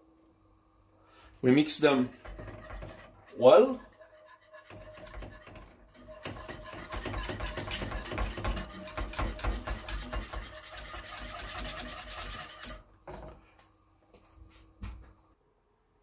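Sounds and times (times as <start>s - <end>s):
whisk scraping a metal pan: 1.4s - 12.9s.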